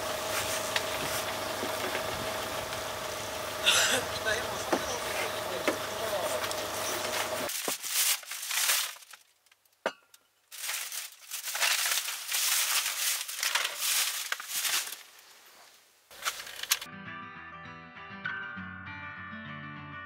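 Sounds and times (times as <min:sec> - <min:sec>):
steady hum: 0:00.0 - 0:07.5
plastic snack bag crinkling: 0:07.5 - 0:09.7, 0:10.5 - 0:15.2, 0:16.1 - 0:16.9.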